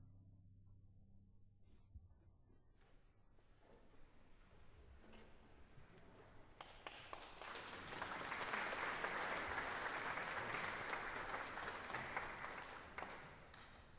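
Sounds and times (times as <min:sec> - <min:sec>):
audience applauding: 0:06.6 - 0:13.9.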